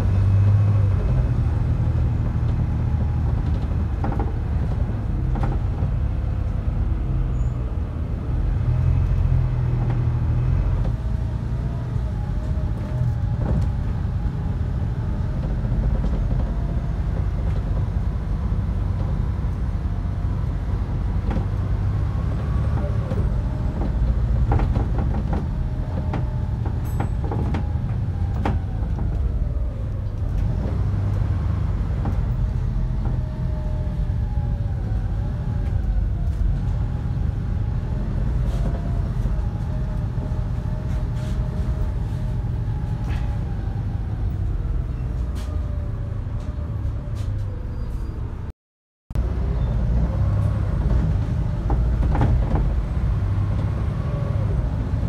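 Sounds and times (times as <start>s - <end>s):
diesel bus engine rumble: 0.0s - 48.5s, 49.1s - 55.0s
interior rattles and clicks: 2.2s - 6.6s, 12.4s - 19.6s, 22.6s - 34.0s, 50.7s - 53.7s.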